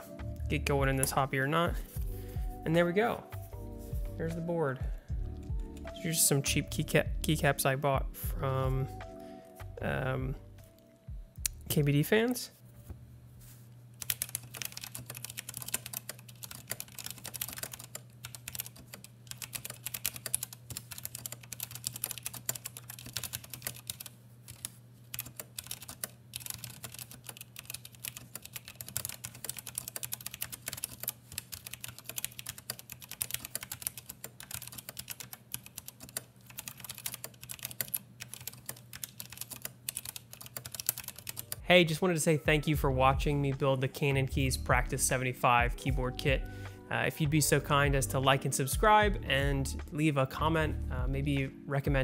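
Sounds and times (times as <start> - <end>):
mechanical keyboard typing: 14.0 - 41.6.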